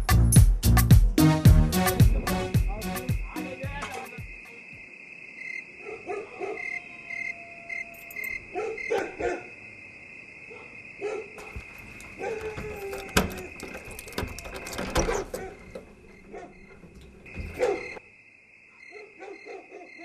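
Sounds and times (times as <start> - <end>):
crickets chirping: 1.8 - 20.0
dogs barking: 5.8 - 7.3, 8.1 - 9.6, 10.5 - 18.0, 18.8 - 20.0.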